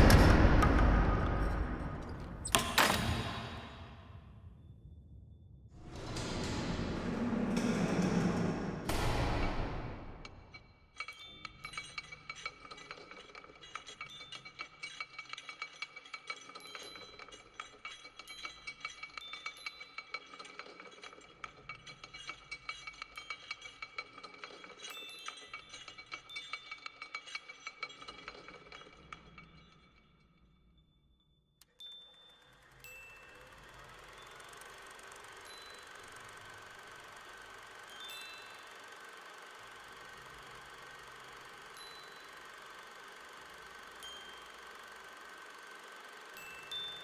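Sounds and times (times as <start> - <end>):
faint steady ringing: 10.3 - 47.0
metallic tinkling and clinking: 10.4 - 30.5, 31.6 - 47.0.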